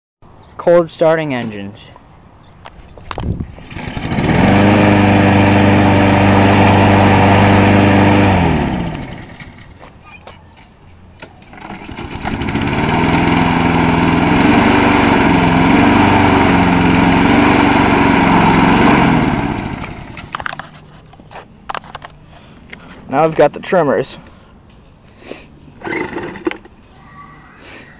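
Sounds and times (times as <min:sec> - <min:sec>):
mower engine pull-started: 0:03.5 - 0:09.8, 0:11.2 - 0:20.7, 0:25.8 - 0:26.8
second mower engine running: 0:03.5 - 0:09.8, 0:11.4 - 0:20.7, 0:25.8 - 0:26.7.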